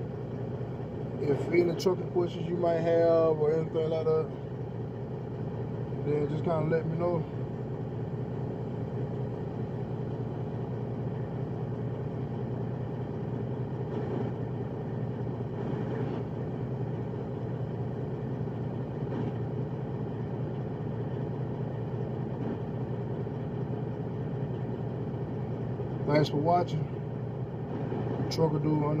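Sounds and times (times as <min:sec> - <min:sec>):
diesel truck engine idling: 0:00.0 - 0:29.0.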